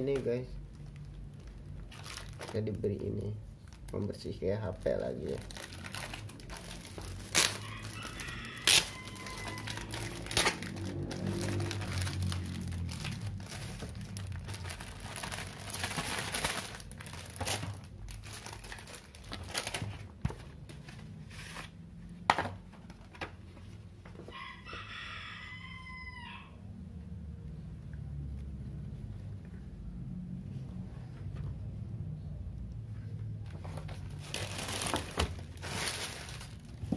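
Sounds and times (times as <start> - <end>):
plastic packaging crinkling: 0.0 - 20.3, 33.7 - 36.9
vinyl sheets rustling: 0.0 - 24.3, 33.4 - 36.9.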